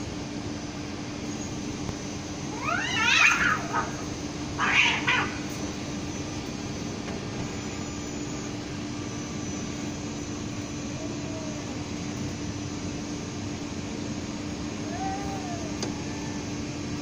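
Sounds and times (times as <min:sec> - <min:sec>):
low background hum: 0:00.0 - 0:17.0
cat hissing: 0:02.5 - 0:05.5, 0:10.8 - 0:12.2, 0:14.8 - 0:16.1
faint low cat growl: 0:10.8 - 0:12.2, 0:14.8 - 0:16.5.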